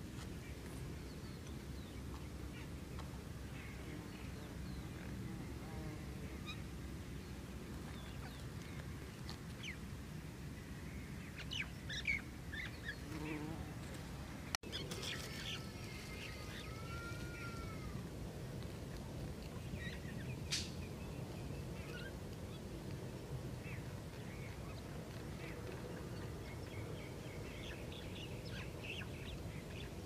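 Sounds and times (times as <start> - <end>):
birds chirping and calling: 14.7 - 17.6.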